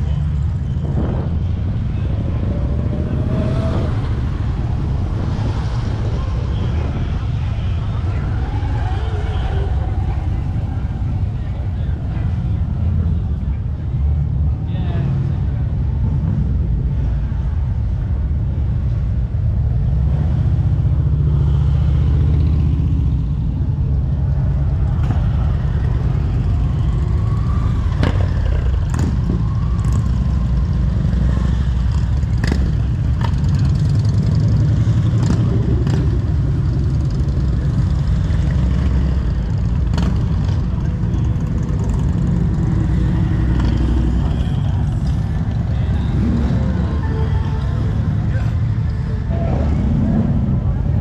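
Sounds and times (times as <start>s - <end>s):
motorcycle engines rumbling: 0.0s - 51.0s.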